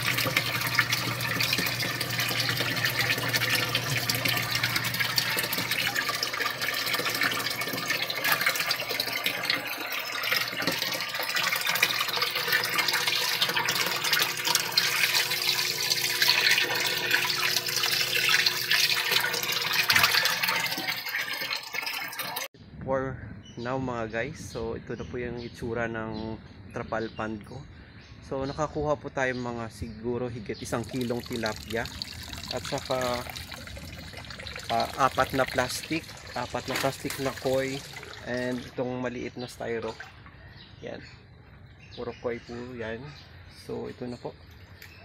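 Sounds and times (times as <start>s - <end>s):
running water: 0.0s - 22.5s, 30.6s - 39.0s
water churning and splashing: 0.0s - 22.5s, 30.7s - 38.8s.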